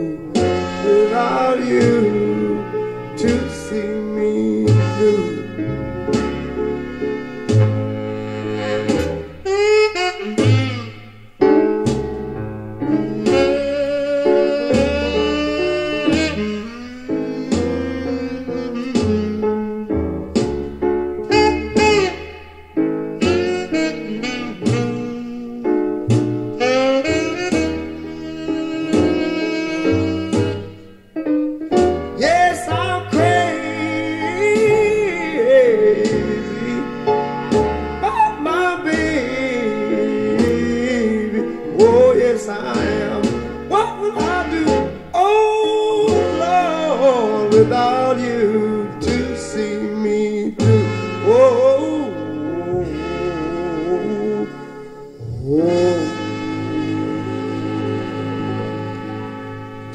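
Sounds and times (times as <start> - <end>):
person singing lead vocal: 0.0 - 5.6, 13.2 - 18.6, 32.2 - 37.1, 38.0 - 58.7
jazz music over loudspeakers: 0.0 - 59.9
piano accompaniment: 0.0 - 59.9.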